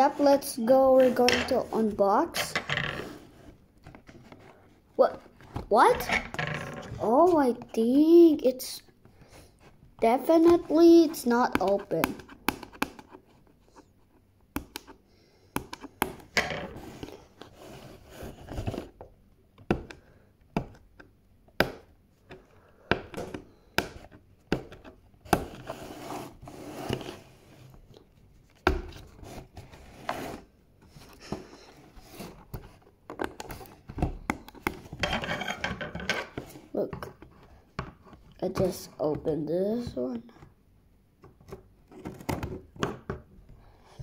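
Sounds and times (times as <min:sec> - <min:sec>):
cardboard scraping and rubbing: 0:25.5 - 0:27.7, 0:29.0 - 0:32.8.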